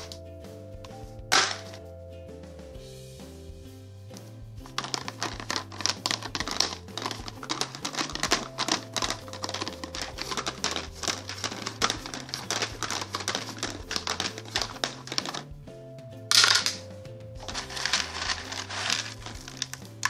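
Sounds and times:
background music: 0:00.0 - 0:20.0
plastic jar lid clicking and rattling: 0:01.3 - 0:01.8, 0:04.6 - 0:15.5, 0:16.3 - 0:20.0.

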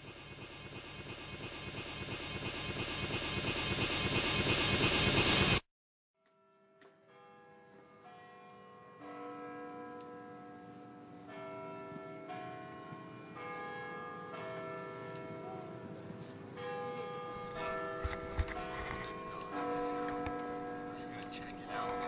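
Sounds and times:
bells ringing a slow tune: 0:06.3 - 0:22.0.

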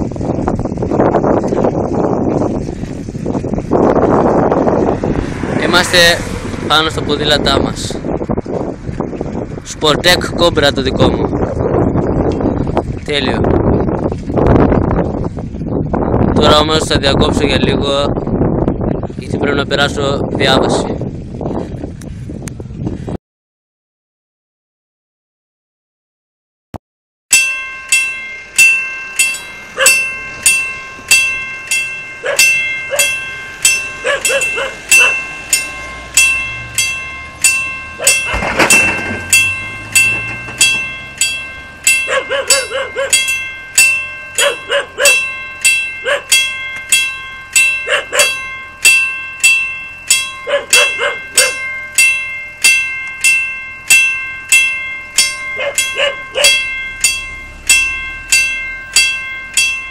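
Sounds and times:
vehicle passing: 0:04.0 - 0:09.8, 0:29.3 - 0:52.1, 0:53.8 - 0:59.9
level crossing warning bell: 0:27.3 - 0:59.9
dog barking: 0:32.2 - 0:33.2, 0:34.0 - 0:35.2, 0:38.0 - 0:38.4, 0:42.1 - 0:43.3, 0:44.4 - 0:45.3, 0:46.0 - 0:46.4, 0:47.8 - 0:48.4, 0:50.4 - 0:51.6, 0:55.6 - 0:56.6.

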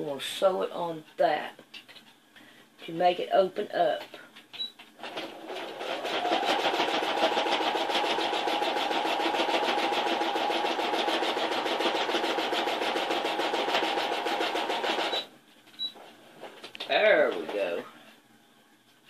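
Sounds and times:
sewing machine stitching: 0:05.0 - 0:15.3.

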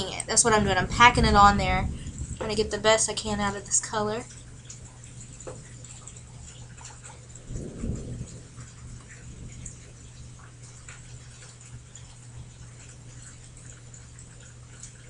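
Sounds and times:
distant thunder rumble: 0:00.0 - 0:11.9
faint low hum: 0:00.0 - 0:15.0.

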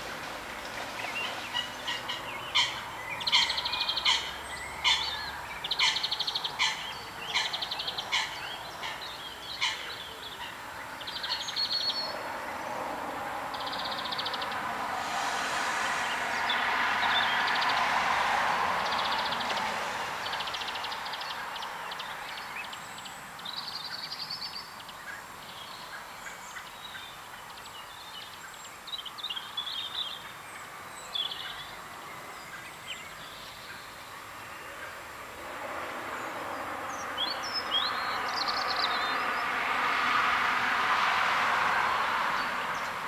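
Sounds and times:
passing vehicle rushing: 0:00.0 - 0:23.2, 0:34.2 - 0:43.0
bird chirps and trills: 0:01.0 - 0:12.2.

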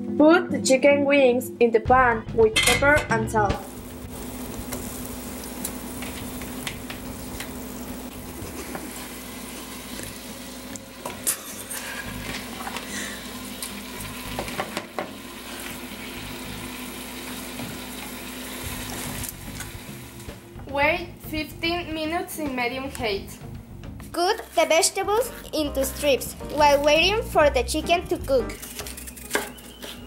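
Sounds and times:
chicken wings sizzling in pan: 0:03.5 - 0:20.4.

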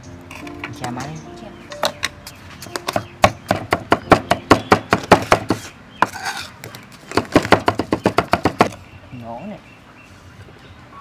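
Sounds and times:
cleaver chopping on wooden block: 0:02.7 - 0:06.2, 0:07.1 - 0:08.8.

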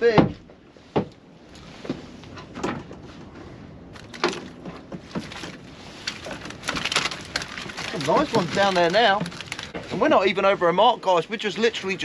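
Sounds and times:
fishing gear knocking and clattering: 0:04.0 - 0:10.0.

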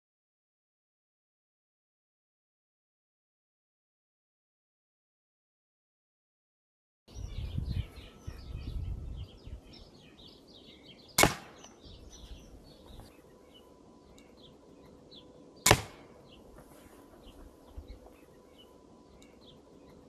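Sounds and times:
birds chirping faintly: 0:07.1 - 0:20.0
crossbow shot cracks: 0:11.2 - 0:11.8, 0:15.6 - 0:16.2.

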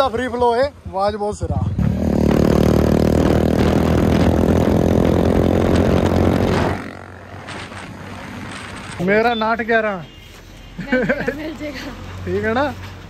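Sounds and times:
loud motorcycle engine: 0:01.4 - 0:09.0.

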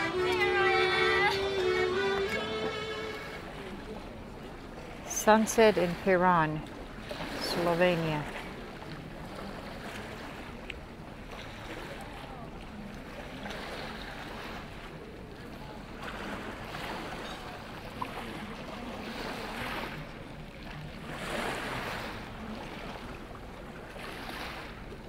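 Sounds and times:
waves washing against rocky shore: 0:00.0 - 0:25.0.

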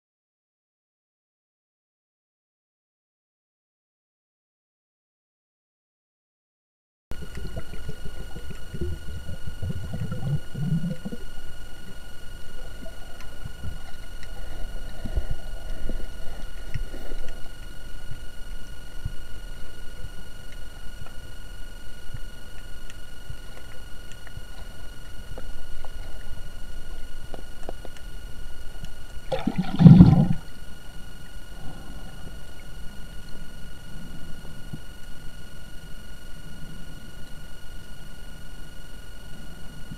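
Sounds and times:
thin high whine: 0:07.1 - 0:39.9
underwater rumble of moving water: 0:07.1 - 0:39.9
watery rush: 0:29.3 - 0:30.4.

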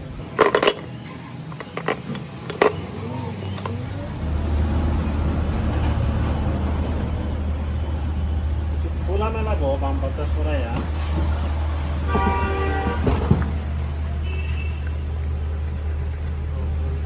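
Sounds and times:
low engine rumble: 0:00.0 - 0:17.0
metal parts clicking: 0:00.3 - 0:02.9.

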